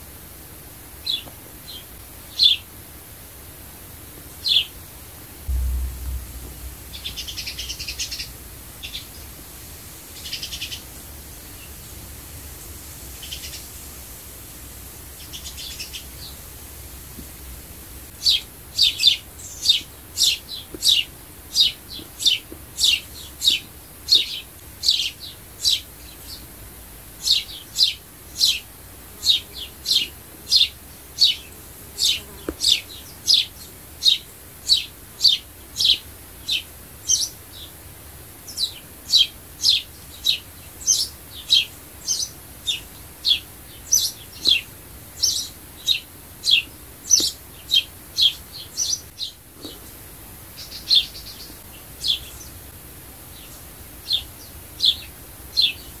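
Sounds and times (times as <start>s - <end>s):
sparrow chirping: 38.6s - 44.6s, 45.2s - 49.4s.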